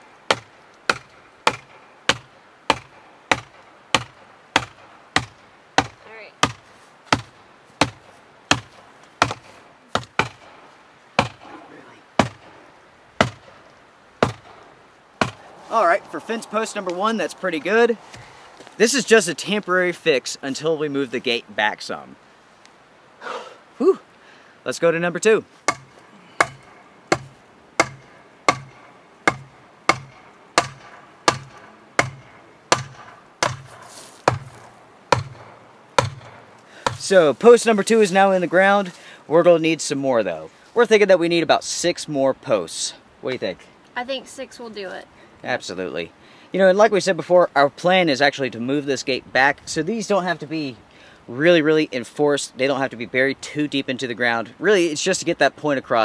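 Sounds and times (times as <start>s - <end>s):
sledgehammer striking wooden post: 0.3s - 10.6s, 11.2s - 11.4s, 12.2s - 12.6s, 13.2s - 13.6s, 14.2s - 14.6s, 15.2s - 15.4s, 25.6s - 37.2s.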